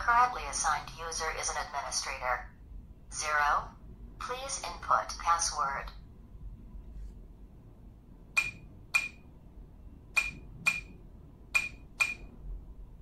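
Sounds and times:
door lock keypad beeps: 0:08.4 - 0:09.2, 0:10.2 - 0:11.0, 0:11.6 - 0:12.3.

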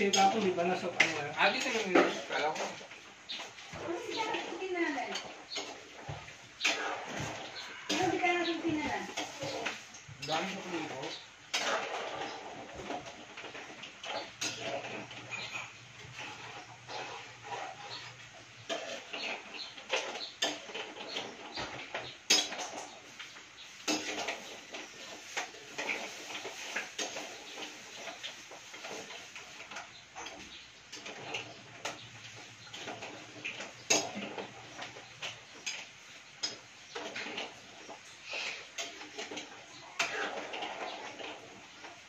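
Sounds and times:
metal ladle scraping a metal pan: 0:06.6 - 0:23.0.

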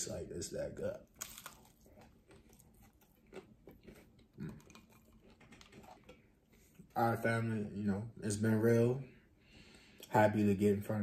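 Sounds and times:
person chewing fried chicken: 0:01.0 - 0:07.0.

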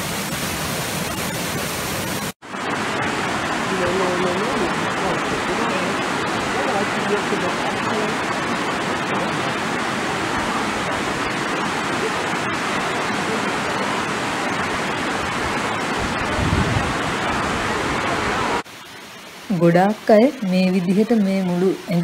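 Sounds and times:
water rushing over cascades: 0:00.0 - 0:22.0.

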